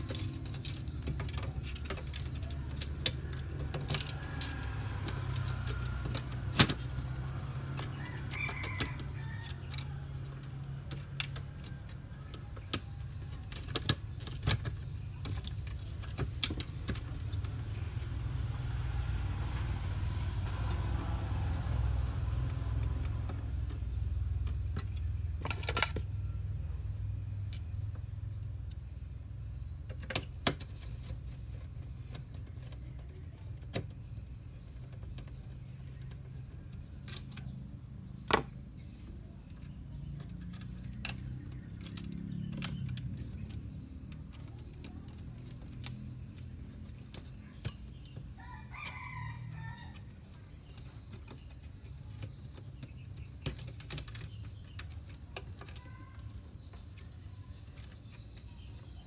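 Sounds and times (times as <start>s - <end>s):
plastic scraping: 19.4s - 26.8s.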